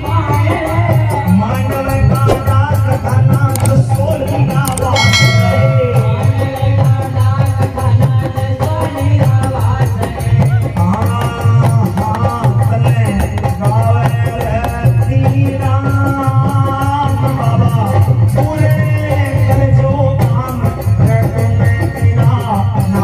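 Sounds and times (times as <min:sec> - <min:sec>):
driving drum beat: 0:00.0 - 0:17.2
hand cymbals: 0:01.2 - 0:09.1.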